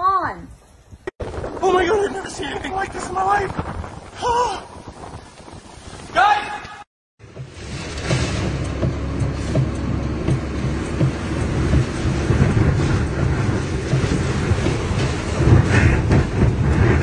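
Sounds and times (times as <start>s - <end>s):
wind buffeting microphone: 0.6s - 17.0s
strong wind rumbling: 0.8s - 17.0s.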